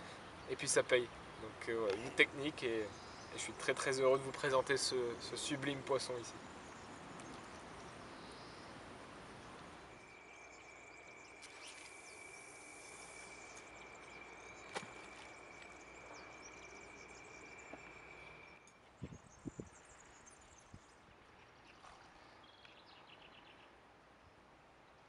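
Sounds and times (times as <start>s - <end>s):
background hiss: 0.0s - 25.0s
high steady whine: 9.8s - 18.8s.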